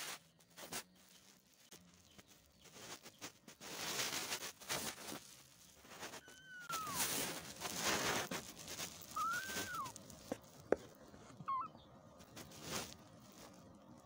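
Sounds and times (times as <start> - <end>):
rustling: 0.0 - 14.0
kittens mewing: 6.0 - 7.5, 9.0 - 10.0, 11.3 - 11.8.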